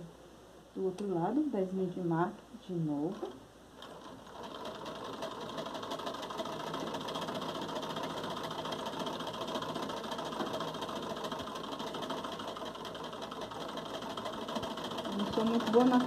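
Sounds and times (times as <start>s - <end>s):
sewing machine running: 3.1s - 16.0s.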